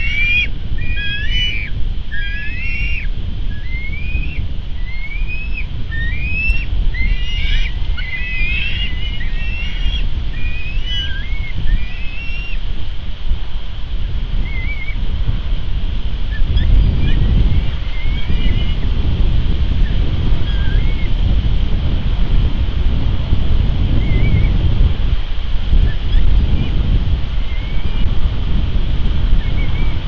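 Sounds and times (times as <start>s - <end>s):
eagle high whistled calls: 0.0s - 12.6s, 14.4s - 15.0s, 16.3s - 18.8s, 20.4s - 21.1s, 27.4s - 28.0s, 29.4s - 30.0s
wind rumble on microphone: 0.0s - 30.0s.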